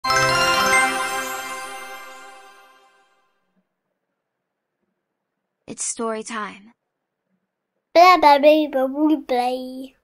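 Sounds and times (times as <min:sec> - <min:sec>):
bright chime-like jingle: 0:00.0 - 0:03.4.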